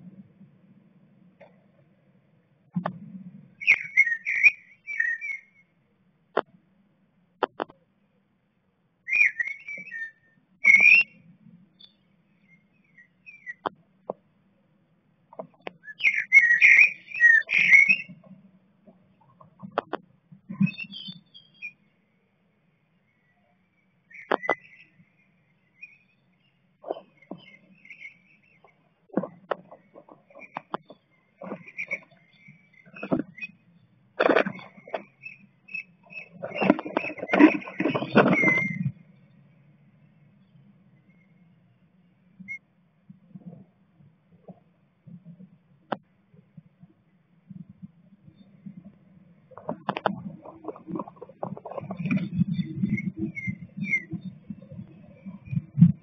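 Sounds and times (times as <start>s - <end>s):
bird chirping calls: 3.6s - 5.7s, 9.0s - 13.8s, 15.3s - 18.3s, 19.4s - 21.9s, 23.1s - 39.5s, 49.6s - 56.0s.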